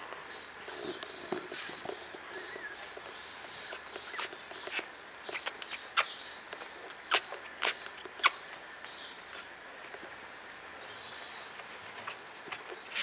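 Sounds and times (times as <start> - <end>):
puppies squeaking: 0.4 - 9.5, 12.0 - 13.0.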